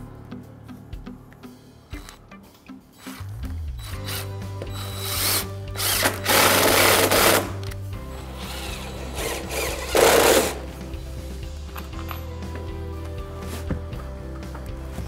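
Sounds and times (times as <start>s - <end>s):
cordless drill driving screws: 3.0s - 7.8s, 8.4s - 10.6s.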